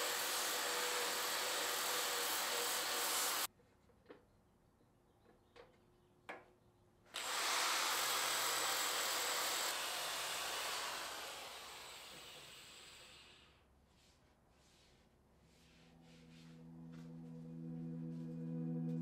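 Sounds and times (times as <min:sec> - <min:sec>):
electric drill sanding wood: 0:00.0 - 0:03.5, 0:07.2 - 0:13.4.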